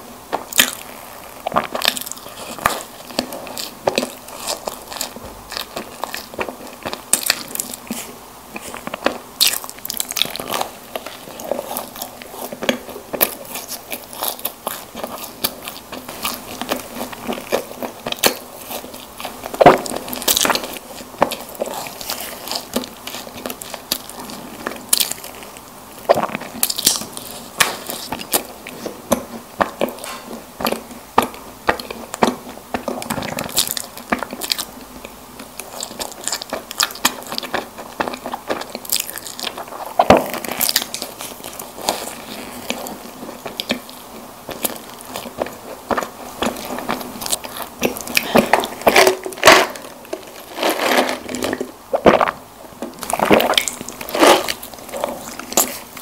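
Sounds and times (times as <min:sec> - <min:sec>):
biting and chewing snack cakes: 0:00.0 - 0:56.0.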